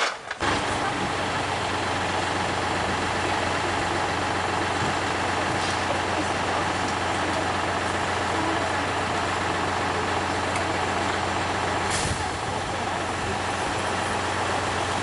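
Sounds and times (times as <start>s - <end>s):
diesel locomotive idling: 0.0s - 15.0s
brief hiss: 11.9s - 12.2s.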